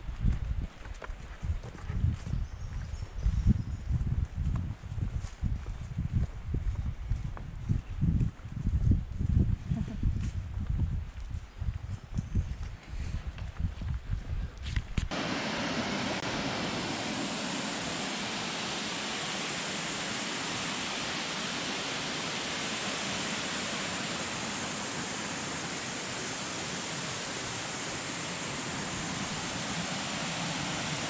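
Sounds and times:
waterfall rushing: 15.1s - 31.0s.

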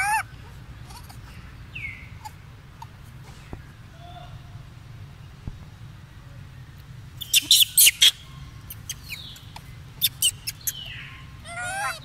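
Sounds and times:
monkey squeaking: 0.0s - 0.2s, 0.9s - 1.2s, 7.2s - 12.0s
wavering chirp: 7.2s - 12.0s
monkey clicking: 8.8s - 10.9s.

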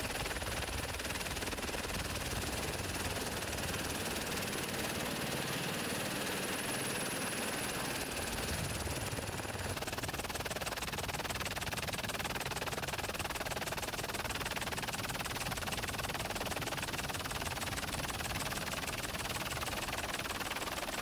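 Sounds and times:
fluttering engine noise: 0.0s - 21.0s.

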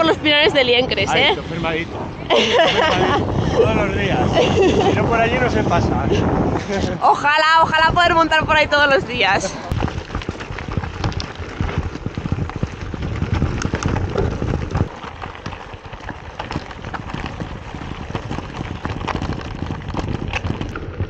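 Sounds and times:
bike rattles and knocks: 9.7s - 21.0s
bike tyres crunching on gravel: 9.7s - 21.0s.

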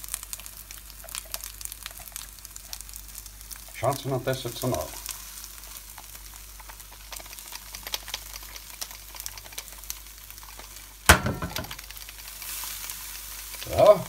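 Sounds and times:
oil sizzling and popping: 0.0s - 14.0s
sharp loud knock: 11.1s - 11.8s.

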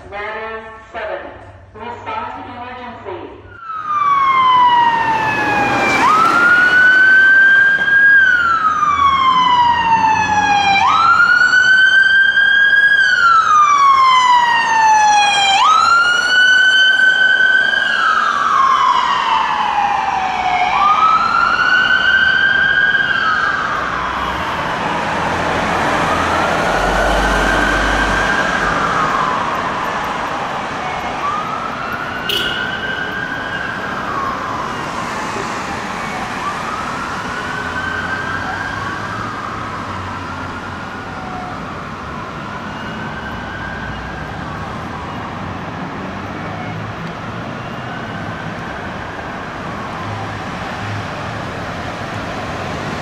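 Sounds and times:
wailing siren: 3.4s - 53.0s.

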